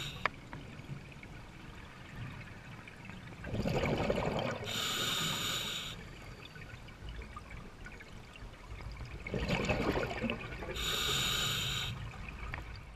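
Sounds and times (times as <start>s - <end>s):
scuba regulator inhalation hiss: 0.0s - 0.2s, 4.7s - 6.0s, 10.8s - 12.0s
exhaust bubbles gurgling underwater: 0.0s - 12.9s.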